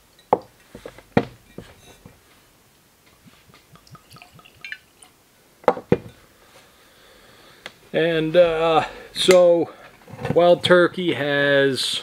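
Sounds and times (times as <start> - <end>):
liquid pouring from a bottle: 3.5 - 5.1.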